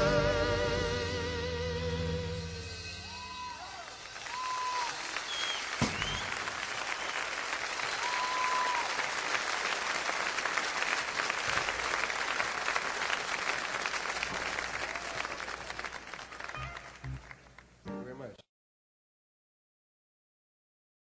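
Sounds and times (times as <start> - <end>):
short whistle: 2.8 - 8.8
audience applauding and cheering: 3.0 - 17.8.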